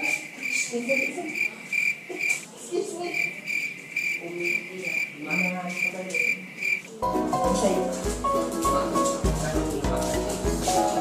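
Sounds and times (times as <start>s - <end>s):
cricket chirping: 0.0s - 7.0s.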